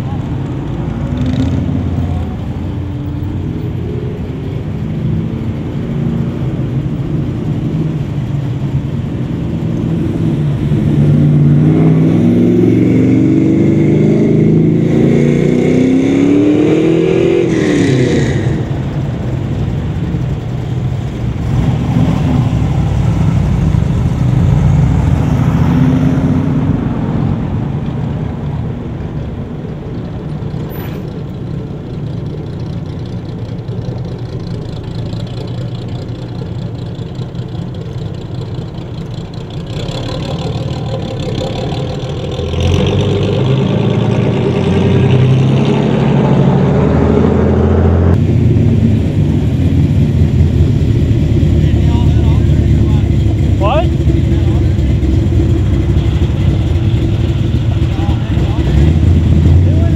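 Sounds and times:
car engine revving: 0.0s - 29.4s, 30.0s - 59.9s
fire engine pulling in: 16.2s - 59.9s
motorcycle passing: 39.2s - 59.9s.

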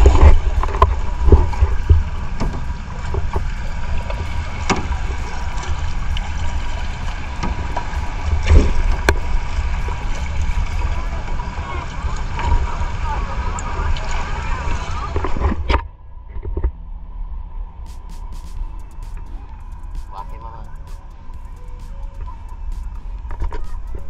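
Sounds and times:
paddle knocks and splashes: 0.0s - 15.7s
water washing: 0.0s - 15.7s, 17.8s - 24.0s
wind rumbling on microphone: 0.0s - 24.0s.

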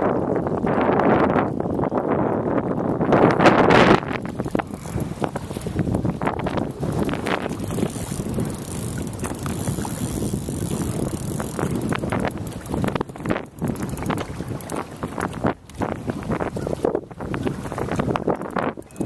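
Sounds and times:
wind buffeting microphone: 0.0s - 19.0s
fishing reel clicking: 4.1s - 15.9s, 18.3s - 19.0s.

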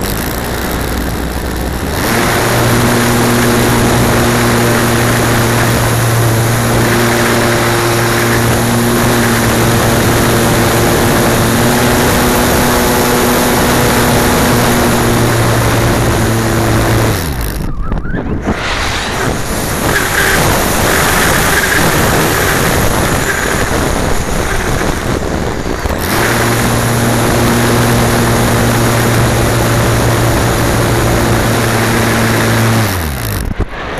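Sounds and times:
rush of air over camera: 17.4s - 28.1s, 33.4s - 33.9s.

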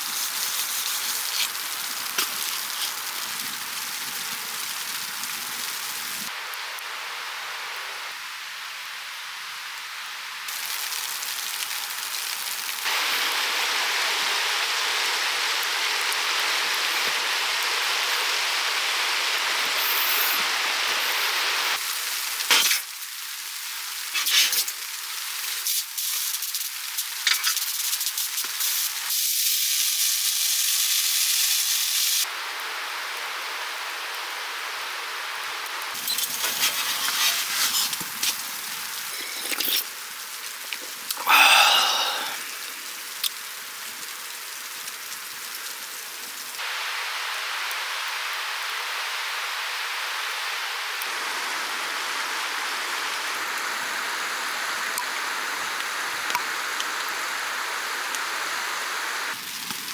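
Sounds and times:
snow sizzling in metal cup: 0.0s - 3.6s, 19.7s - 20.4s, 24.1s - 24.8s, 25.4s - 32.2s, 36.0s - 40.0s
fire hissing and crackling: 0.0s - 59.9s.

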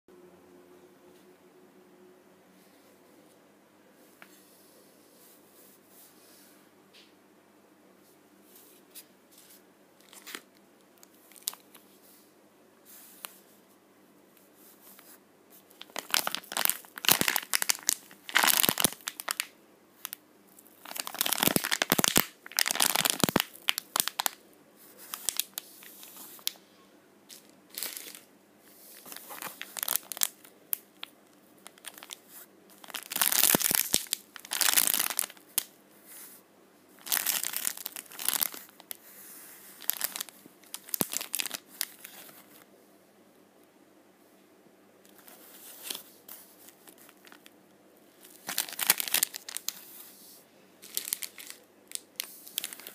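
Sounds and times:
plastic wrappers crinkling: 10.0s - 11.8s, 15.0s - 26.6s, 27.3s - 35.8s, 37.0s - 39.0s, 39.6s - 42.6s, 45.1s - 47.6s, 48.2s - 50.0s, 50.8s - 52.9s.

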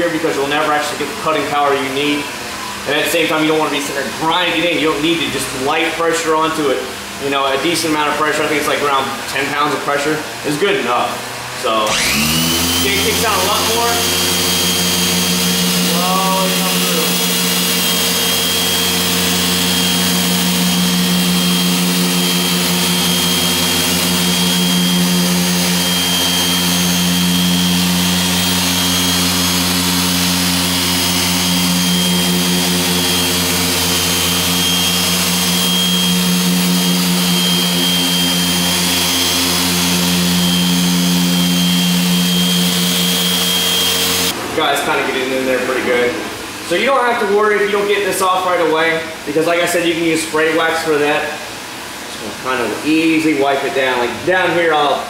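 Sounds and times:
orbital polisher humming: 11.6s - 44.4s.

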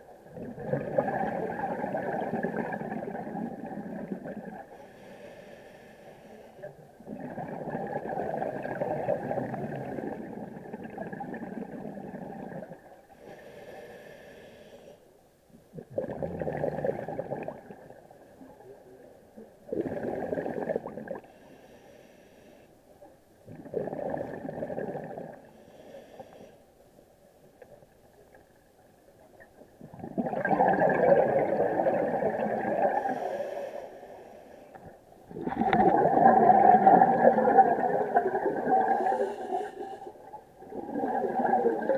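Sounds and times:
underwater bubbles gurgling: 0.0s - 5.6s, 6.6s - 14.2s, 15.7s - 21.4s, 23.4s - 26.0s, 27.5s - 41.9s
regulator inhale hiss: 4.8s - 6.7s, 13.1s - 15.1s, 21.2s - 22.8s, 25.5s - 26.7s, 33.0s - 34.9s, 39.0s - 40.2s.

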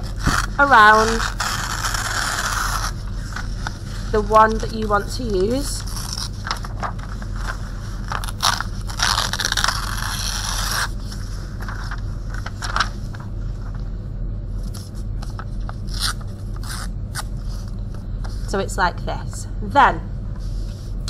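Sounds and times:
paper tearing: 0.0s - 3.6s, 5.6s - 7.1s, 8.0s - 12.9s, 15.8s - 17.3s.

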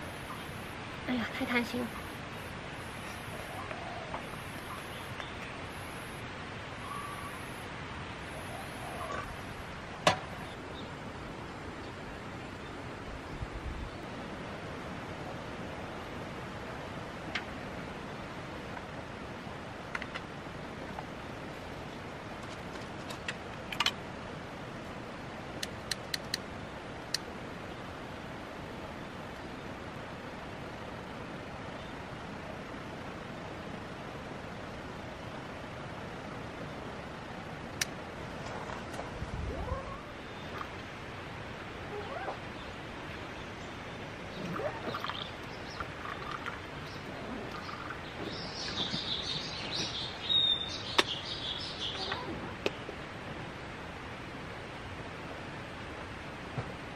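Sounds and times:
small birds chirping: 0.0s - 7.6s, 39.5s - 53.0s.

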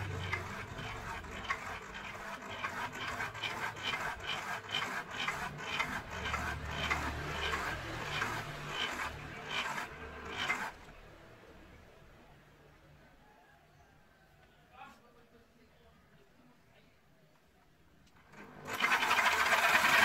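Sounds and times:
drill motor hum: 0.0s - 10.9s
bike pump plunger rasping: 0.1s - 10.7s.

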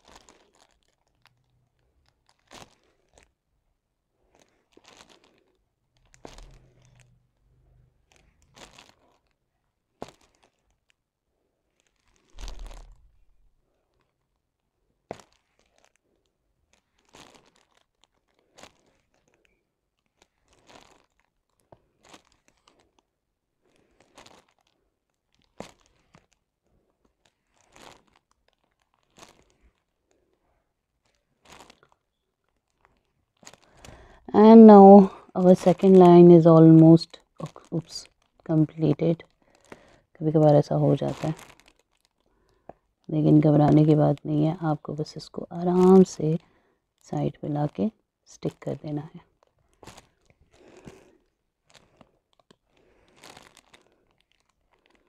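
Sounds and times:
plastic film rustling: 0.0s - 3.4s, 4.2s - 7.2s, 8.0s - 11.0s, 11.7s - 55.0s.

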